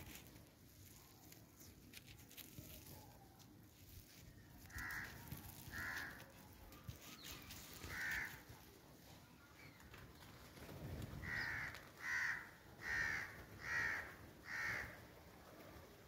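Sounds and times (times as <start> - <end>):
crows cawing: 4.6 - 6.3, 7.8 - 8.5, 11.2 - 15.0.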